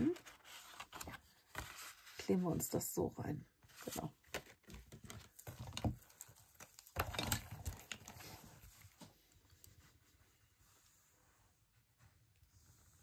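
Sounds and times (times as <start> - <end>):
paper rustling: 0.0 - 2.6, 3.6 - 10.9.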